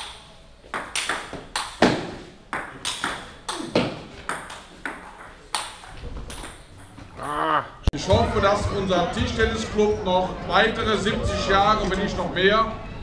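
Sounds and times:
table tennis ball clicking: 0.0 - 1.9, 2.5 - 7.0.

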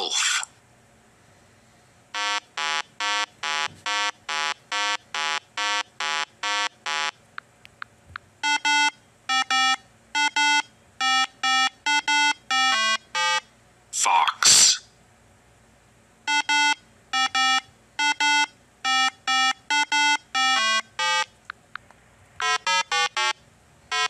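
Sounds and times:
electronic square-wave beeps: 2.2 - 7.1, 8.4 - 13.5, 16.3 - 21.3, 22.4 - 24.0.

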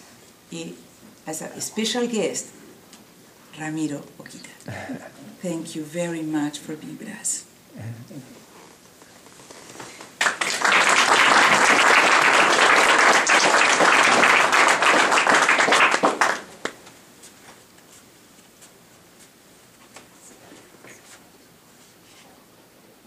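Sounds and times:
audience applauding: 10.0 - 16.8.

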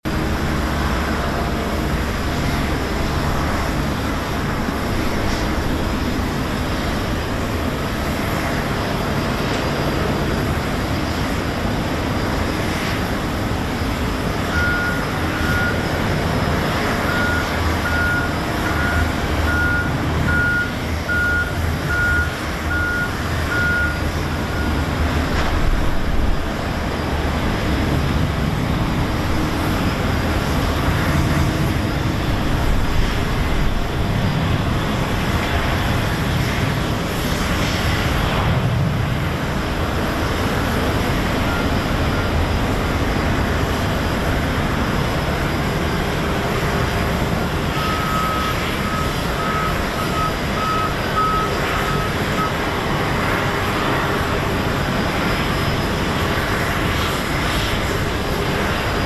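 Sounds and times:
jet aircraft taxiing rumble: 0.0 - 59.0
reversing beeper: 14.0 - 25.5, 40.8 - 42.7, 47.6 - 54.4.

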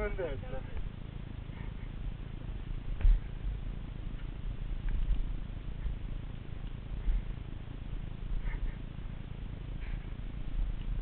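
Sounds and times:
mountain bike rumble and rattle: 0.0 - 11.0.

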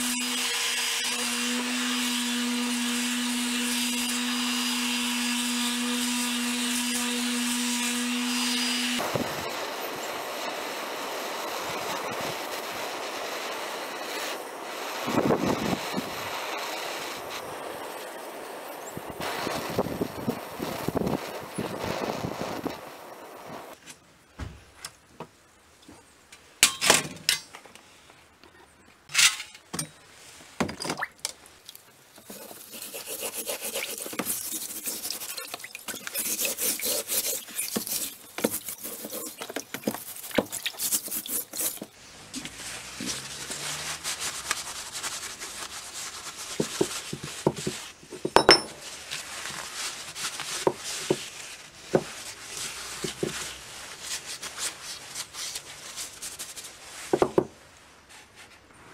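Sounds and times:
paper towel rubbing metal: 32.2 - 47.9.

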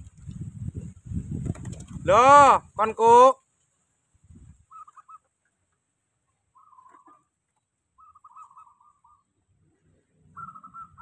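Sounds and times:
dove cooing: 4.7 - 5.3, 8.0 - 9.2, 10.3 - 11.0.

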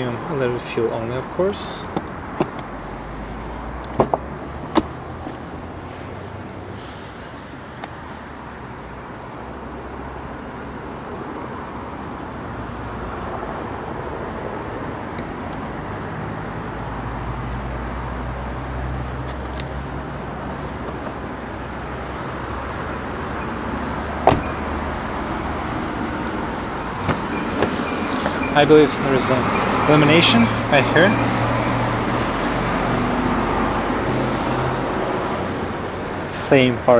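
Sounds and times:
traffic noise: 0.0 - 36.9
car door shutting: 3.8 - 5.4, 23.4 - 24.9, 26.9 - 28.7.

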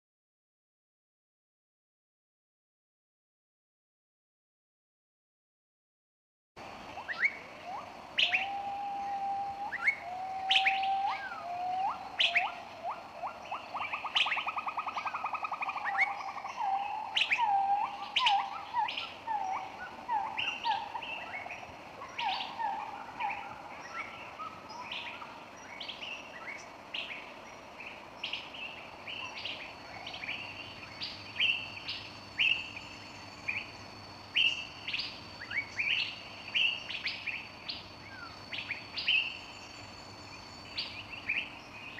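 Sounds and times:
birds chirping and singing: 7.0 - 26.8.

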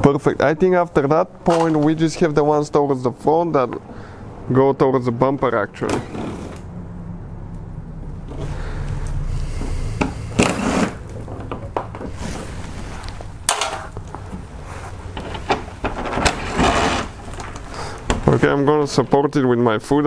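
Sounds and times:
knocks and clicks of handling: 9.6 - 14.5, 15.1 - 16.6.

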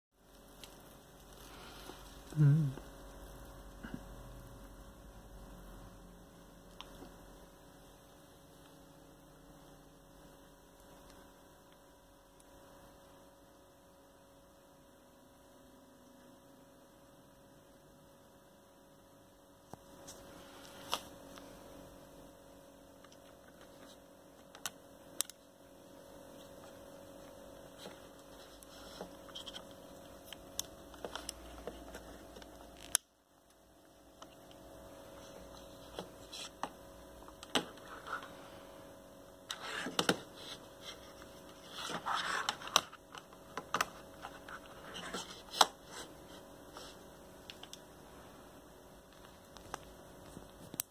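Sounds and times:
faint electrical hum: 0.2 - 50.9.

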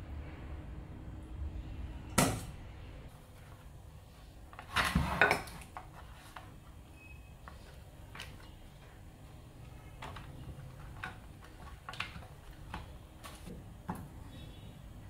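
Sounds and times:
kitchenware clattering: 4.6 - 5.8.

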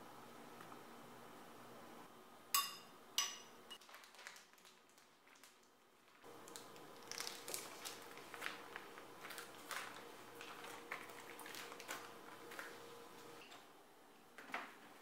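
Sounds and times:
faint steady hum: 0.0 - 15.0
plastic bags crinkling: 3.8 - 12.8.

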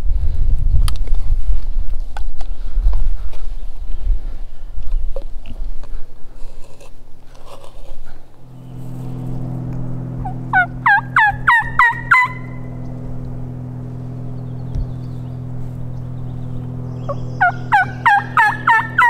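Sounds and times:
turkey call yelps: 10.5 - 12.4, 17.0 - 19.0.

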